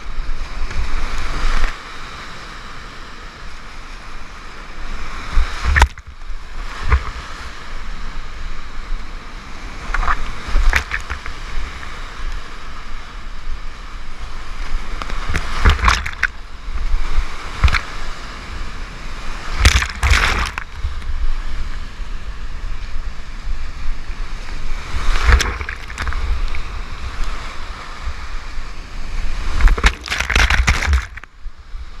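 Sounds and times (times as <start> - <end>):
loud wave splashes: 14.8 - 21.4, 24.2 - 31.4.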